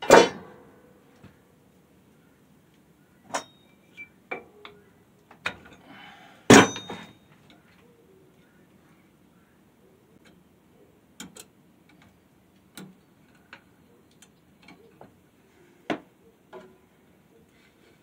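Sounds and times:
metal clinks and knocks: 6.5 - 7.3.

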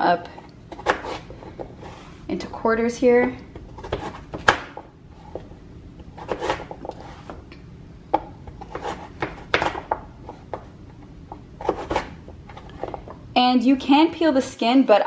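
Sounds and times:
knife chopping on wooden board: 0.7 - 2.0, 3.6 - 5.4, 6.1 - 7.4, 8.1 - 10.7, 11.6 - 12.1.

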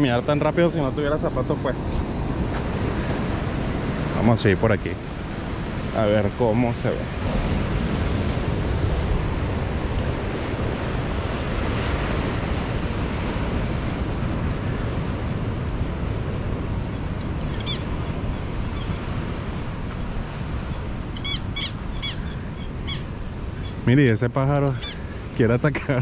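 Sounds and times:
wind on microphone: 0.0 - 23.9
ocean surf: 0.0 - 26.0
short bird calls: 17.0 - 23.8, 24.7 - 25.2.

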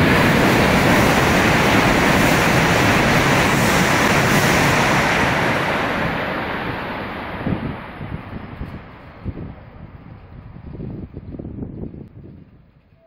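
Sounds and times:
train passing at speed: 0.0 - 13.0.

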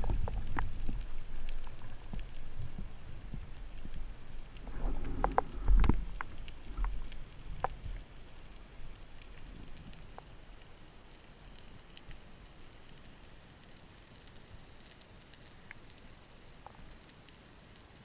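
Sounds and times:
low underwater rumble: 0.0 - 10.5
faint hiss: 0.0 - 18.0
light ticks: 0.0 - 18.0.

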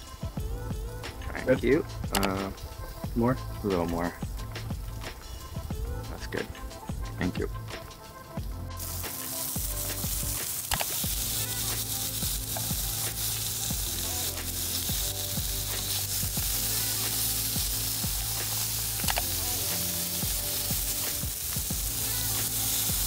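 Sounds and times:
meat sizzling on a grill: 0.0 - 23.0
sharp clicks: 2.1 - 2.5, 10.6 - 11.0, 19.0 - 19.4.

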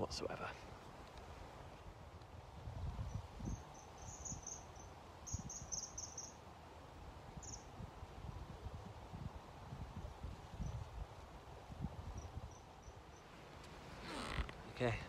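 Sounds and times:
wind buffeting microphone: 1.9 - 4.6, 7.1 - 12.9.

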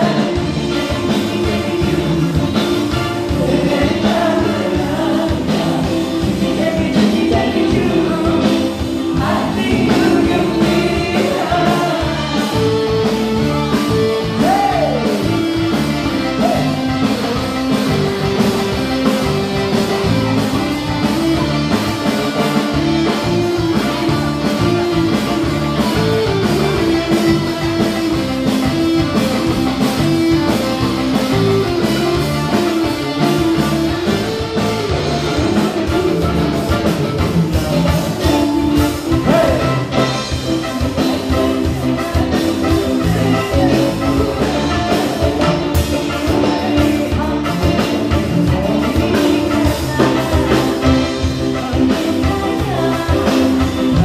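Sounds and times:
people singing together: 0.0 - 13.4, 38.2 - 54.0
amplified band music: 0.0 - 54.0.

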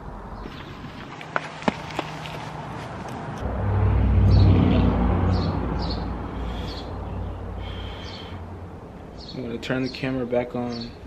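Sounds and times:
motor vehicle passing by: 0.9 - 9.3
birds chirping: 4.2 - 11.0.

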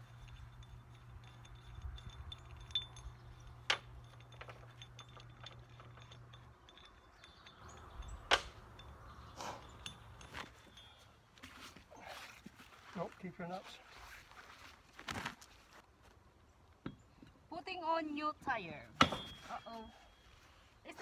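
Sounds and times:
metal clinks of wheel lug nuts: 0.0 - 11.1.

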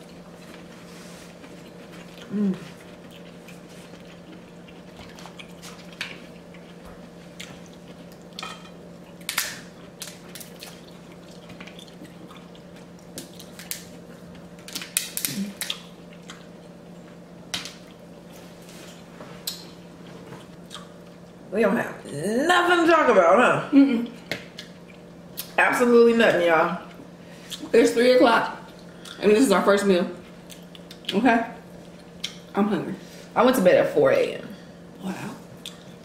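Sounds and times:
low background hum: 0.0 - 36.0
chewing and lip smacking: 1.4 - 8.4, 9.1 - 16.8, 20.4 - 21.1, 30.2 - 31.2, 35.6 - 36.0.

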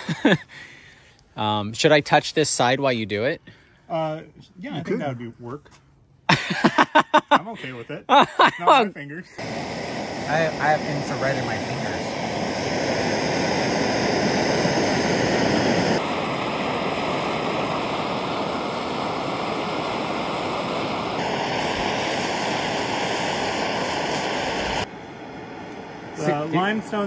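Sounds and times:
gas torch hissing: 9.4 - 27.0.

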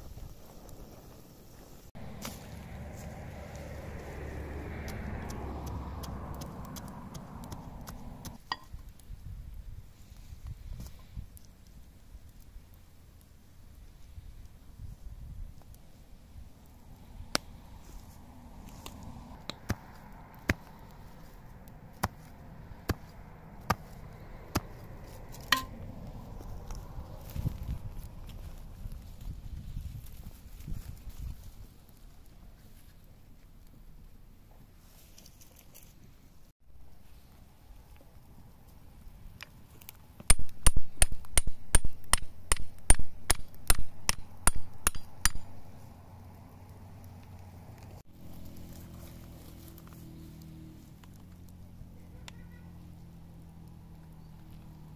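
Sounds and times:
campfire pops and cracks: 0.0 - 9.3, 15.4 - 29.3, 39.3 - 45.7, 49.8 - 51.6
hatchet hammering wooden stake: 21.9 - 24.8, 25.4 - 25.8, 40.2 - 45.6.

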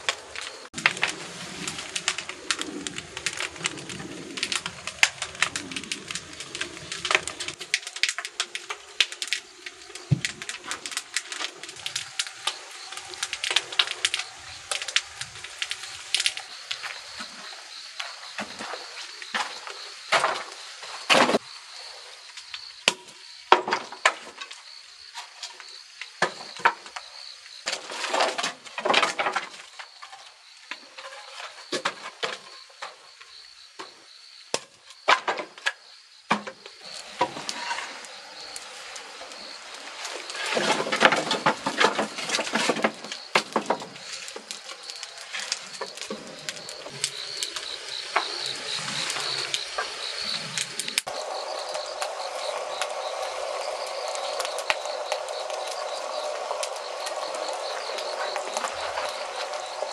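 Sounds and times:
sharp clicks and crackles: 0.0 - 20.5, 33.8 - 59.9
cricket trill: 0.0 - 59.9.

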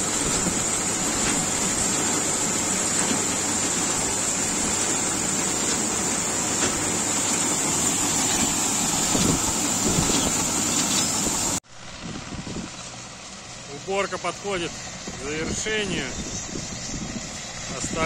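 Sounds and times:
grain pouring: 0.0 - 11.6
grain loader running: 0.0 - 18.0.

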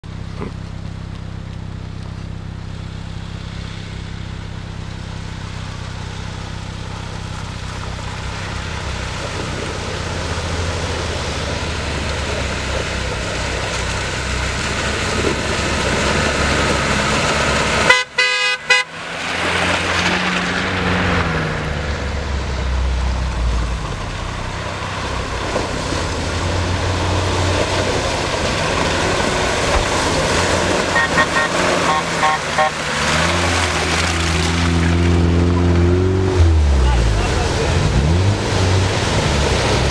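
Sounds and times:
car engines revving: 0.0 - 39.9
car horn toots: 17.8 - 19.0, 30.8 - 32.9.

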